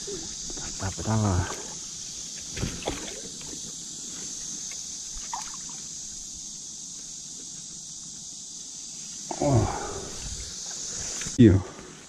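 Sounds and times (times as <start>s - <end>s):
water splashing: 2.6s - 3.6s, 5.2s - 5.8s.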